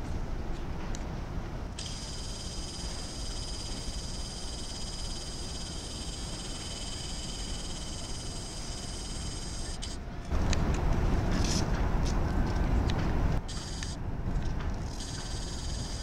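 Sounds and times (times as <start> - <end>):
high-pitched insect trilling: 1.8 - 10.0, 13.5 - 14.0, 14.9 - 16.0.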